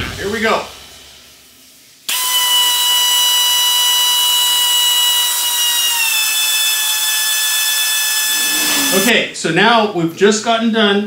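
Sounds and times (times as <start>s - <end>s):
air drill whining: 2.1s - 9.1s.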